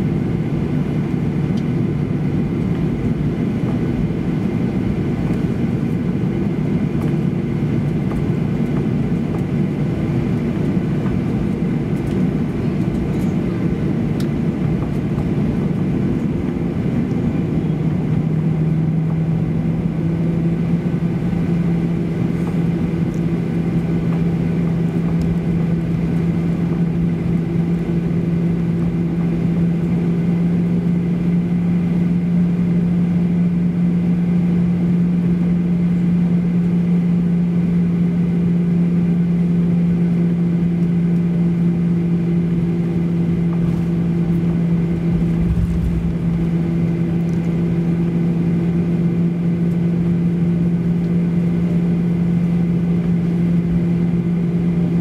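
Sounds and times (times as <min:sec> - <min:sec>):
airliner cabin hum: 0:00.0 - 0:55.0
brief low rumble: 0:44.9 - 0:47.6.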